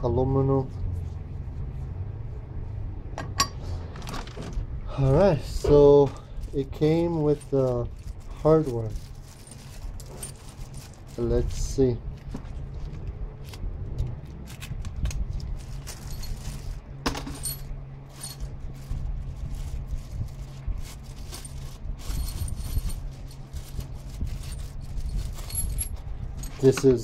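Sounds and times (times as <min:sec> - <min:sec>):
plastic bag rustling: 0:05.5 - 0:13.6, 0:14.2 - 0:27.0
small metal parts clinking: 0:06.4 - 0:11.8, 0:14.5 - 0:19.7, 0:20.3 - 0:27.0.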